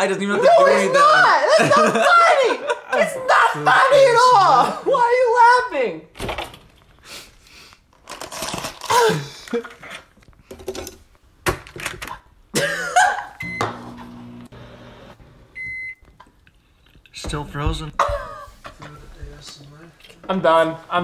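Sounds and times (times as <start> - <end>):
food packages rustling: 6.8 - 10.5
microwave keypad beeps: 13.4 - 13.8, 15.6 - 16.0
microwave humming: 13.4 - 16.1.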